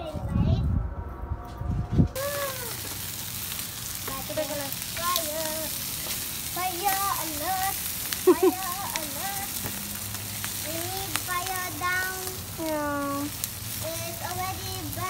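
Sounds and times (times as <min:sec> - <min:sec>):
fire crackling: 0:02.0 - 0:15.0
chicken sizzling on a grill: 0:02.2 - 0:15.0
person speaking: 0:08.3 - 0:08.6, 0:12.6 - 0:13.3.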